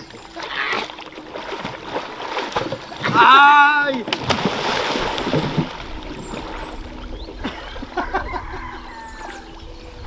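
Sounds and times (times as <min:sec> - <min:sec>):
water splashing: 0:00.0 - 0:08.0
water sloshing: 0:00.0 - 0:09.7.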